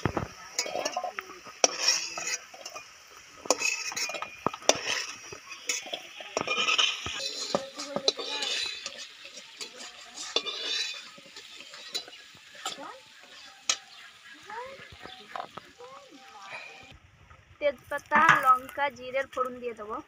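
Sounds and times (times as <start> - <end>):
oil sizzling: 0.0 - 16.9
metal spatula scraping and clinking: 0.5 - 14.4.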